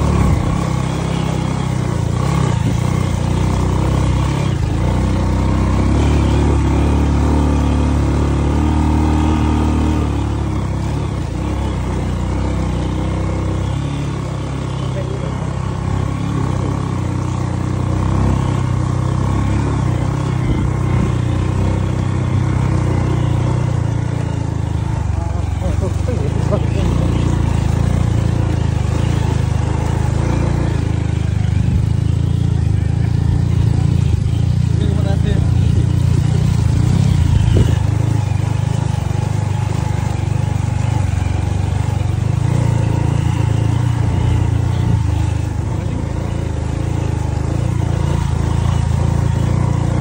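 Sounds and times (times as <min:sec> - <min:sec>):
motorcycle engine running: 0:00.0 - 0:50.0.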